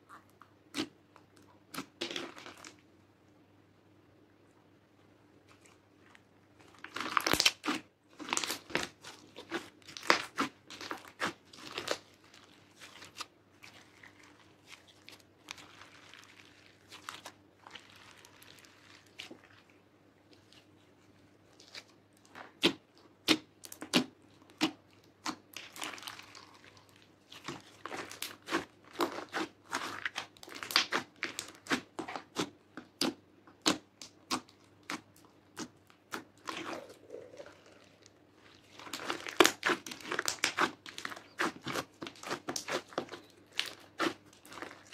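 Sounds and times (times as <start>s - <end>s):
slime squishing and popping: 6.7s - 12.0s, 21.6s - 38.0s, 38.6s - 44.9s.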